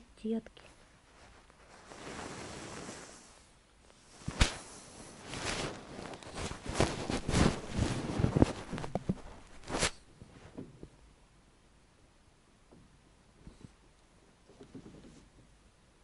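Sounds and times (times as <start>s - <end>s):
recorder rubbing on fabric: 1.0s - 3.5s, 4.1s - 10.0s.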